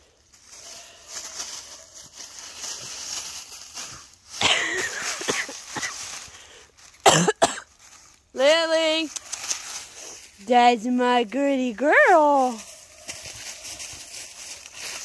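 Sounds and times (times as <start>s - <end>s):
dry leaves rustling: 0.0s - 15.0s
dog coughing: 7.0s - 7.7s.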